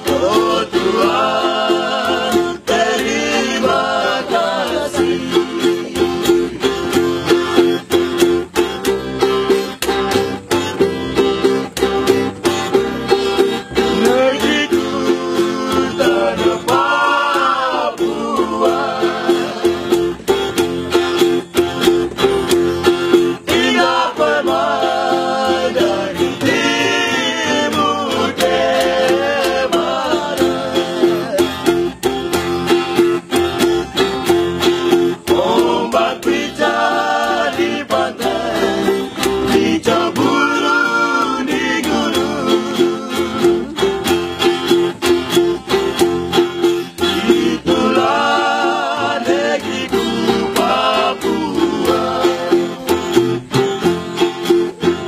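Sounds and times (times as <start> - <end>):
men singing together: 0.0 - 8.0, 12.8 - 20.6, 22.2 - 32.1, 34.8 - 44.0, 46.7 - 53.8
plucked bass: 0.0 - 55.0
strummed acoustic guitar: 0.0 - 55.0.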